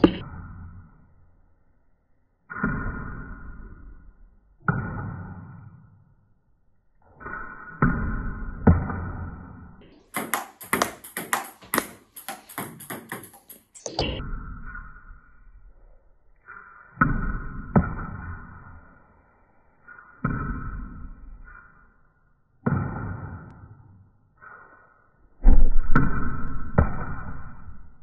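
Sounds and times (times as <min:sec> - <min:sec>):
ball clicking off paddle and table: 0:00.0 - 0:00.2, 0:10.1 - 0:14.2
table tennis ball strikes: 0:00.0 - 0:00.2, 0:10.0 - 0:14.2.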